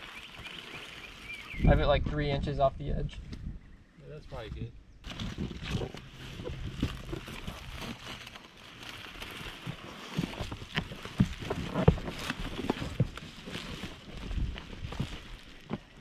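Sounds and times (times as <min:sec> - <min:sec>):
membrane roll rustling: 0:05.0 - 0:16.0.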